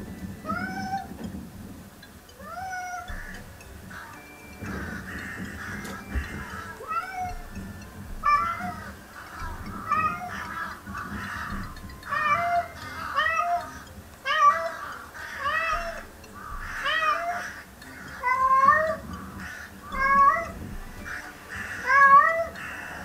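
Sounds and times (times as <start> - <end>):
cat meowing: 0.5 - 1.1, 6.8 - 7.6, 8.2 - 8.9, 14.3 - 14.8, 15.4 - 16.0, 16.7 - 17.5, 18.2 - 19.0, 20.0 - 20.6, 21.8 - 22.6.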